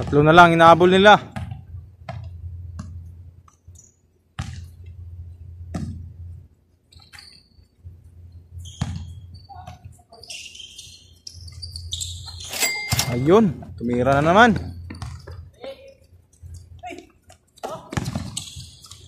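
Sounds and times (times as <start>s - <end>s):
basketball bouncing on hard court: 1.2s - 3.1s, 4.4s - 4.9s, 5.6s - 6.1s, 8.7s - 9.9s, 13.9s - 15.5s, 17.6s - 18.8s
steady low hum: 1.2s - 6.9s
sneakers squeaking on floor: 6.8s - 19.0s.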